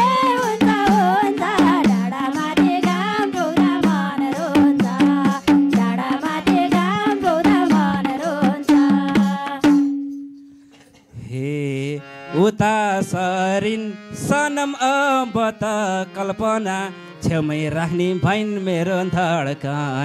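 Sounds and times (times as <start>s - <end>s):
hand drum quick rhythm: 0.0s - 10.3s
harmonium melody: 0.0s - 10.6s, 11.3s - 20.0s.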